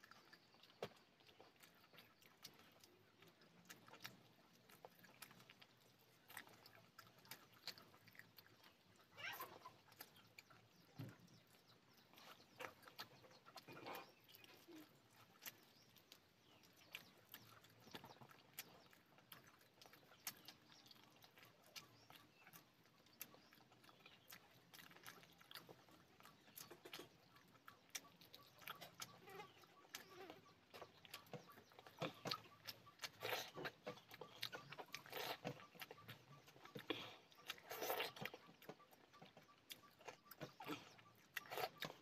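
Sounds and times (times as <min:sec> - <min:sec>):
lip-smacking clicks: 0:00.0 - 0:42.0
person chewing: 0:00.0 - 0:42.0.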